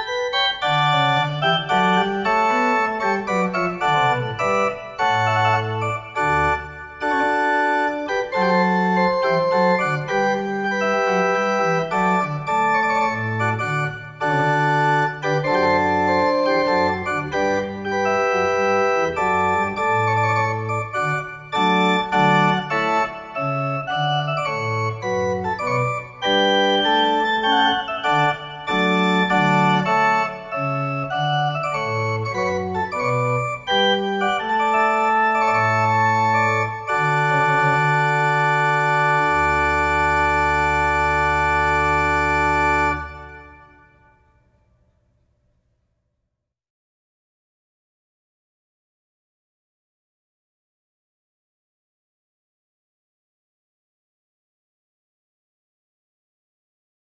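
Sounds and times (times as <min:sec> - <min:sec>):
pipe organ playing: 0:00.0 - 0:44.3.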